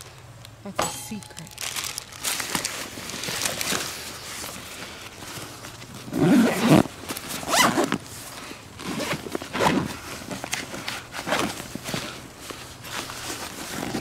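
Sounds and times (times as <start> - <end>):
backpack rustling: 1.6 - 14.0
backpack zippers pulled: 6.0 - 8.0, 8.8 - 10.6.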